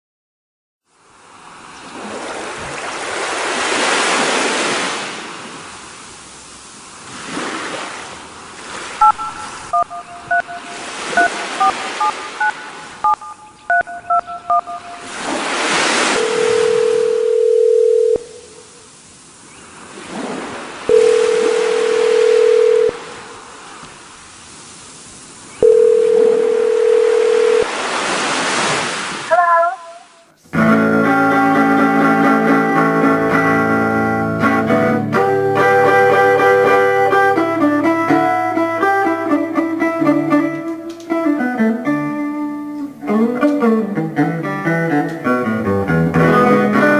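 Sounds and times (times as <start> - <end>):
hiss like surf: 0.9 - 9.7, 14.8 - 17.2, 18.3 - 26.0, 26.6 - 32.9
keypad dialing beeps: 9.0 - 15.0, 20.9 - 23.0
telephone ringing tones: 9.0 - 15.1, 16.0 - 18.4, 20.9 - 23.1, 25.6 - 27.7.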